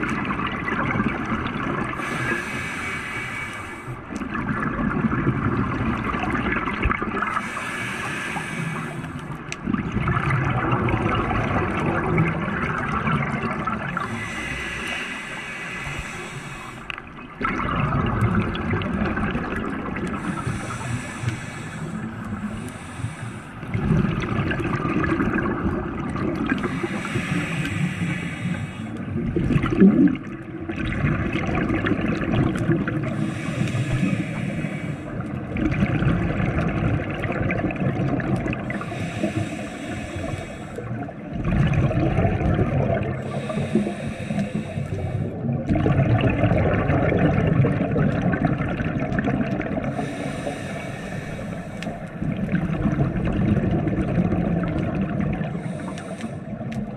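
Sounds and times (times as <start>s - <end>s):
exhaled bubbles gurgling: 0.0s - 56.9s
regulator inhale hiss: 2.0s - 4.0s, 7.3s - 9.4s, 14.0s - 17.1s, 20.2s - 23.7s, 26.6s - 29.1s, 33.1s - 35.4s, 38.6s - 41.1s, 43.2s - 45.5s, 49.8s - 52.2s, 55.4s - 56.9s.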